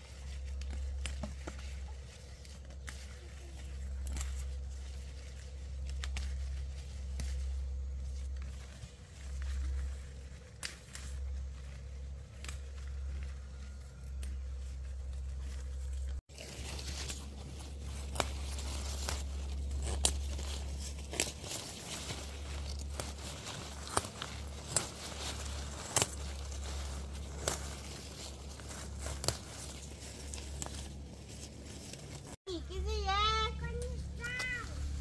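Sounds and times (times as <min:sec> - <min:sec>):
steady low rumble: 0:00.0 - 0:35.0
stems and leaves snapping: 0:00.1 - 0:32.4.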